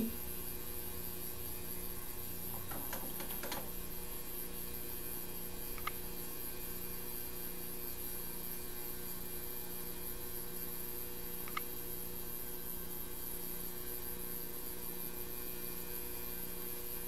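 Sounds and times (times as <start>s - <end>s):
electrical mains hum: 0.0s - 17.0s
small click: 5.7s - 6.0s, 11.4s - 11.7s.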